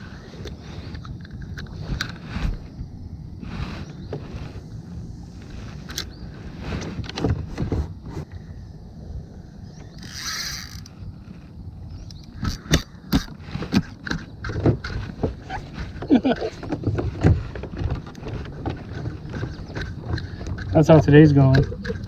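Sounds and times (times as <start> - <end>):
fishing reel clicks and knocks: 9.8 - 10.9.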